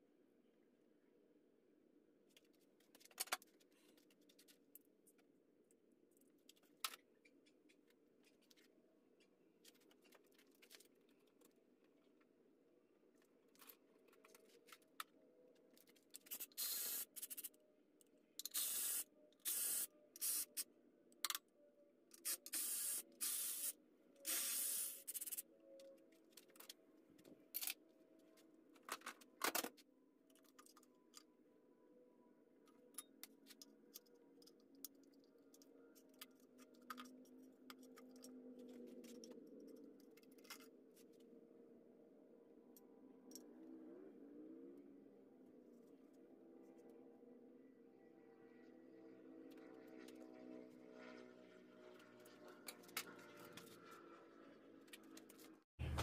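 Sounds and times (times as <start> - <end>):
hissing spray bursts: 18.5 - 20.6, 22.3 - 25.2.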